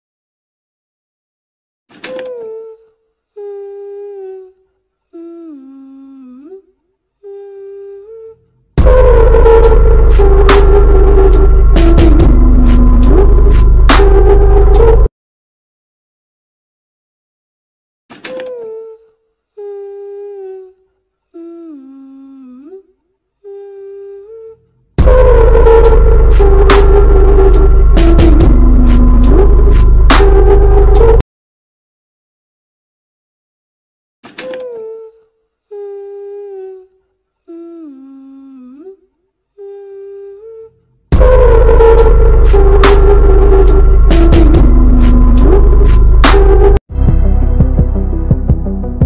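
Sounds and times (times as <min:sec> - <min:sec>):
person humming a slow tune: 0:02.1 - 0:15.1, 0:18.3 - 0:31.2, 0:34.4 - 0:48.0
loud music with heavy bass: 0:08.8 - 0:15.0, 0:25.0 - 0:31.1, 0:41.2 - 0:49.0.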